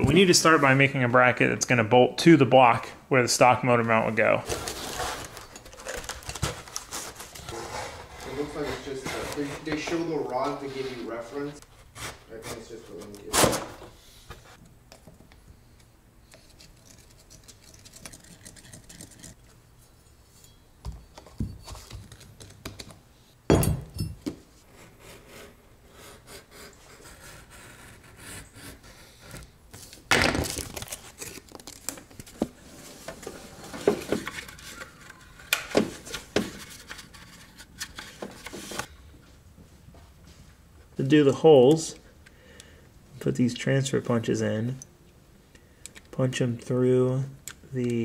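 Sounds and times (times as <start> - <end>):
handling rustles: 4.4 - 13.7
knife cutting cardboard: 24.8 - 29.4.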